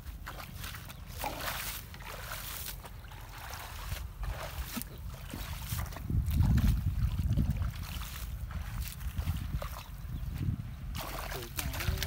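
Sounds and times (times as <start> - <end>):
muddy water sloshing and splashing: 0.0 - 12.0.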